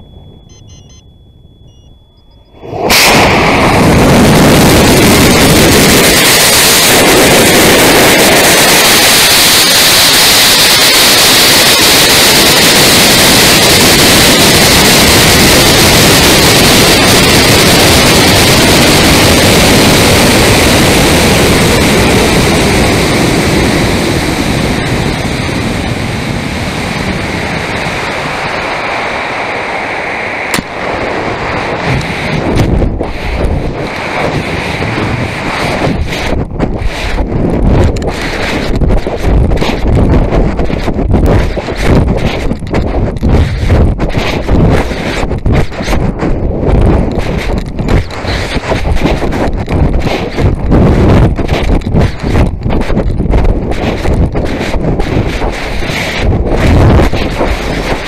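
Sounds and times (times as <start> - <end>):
faint beeps: 0.0 - 2.7
rocket motor roaring: 2.5 - 58.0.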